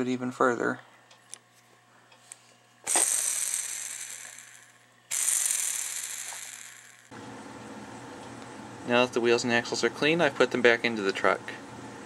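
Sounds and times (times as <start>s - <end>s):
steel wheels spinning on axle: 2.9s - 7.1s.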